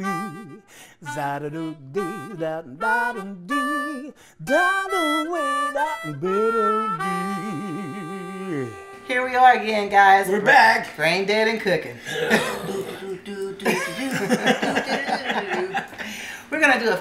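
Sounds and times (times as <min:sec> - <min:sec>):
instrumental theme music: 0:03.0 - 0:09.3.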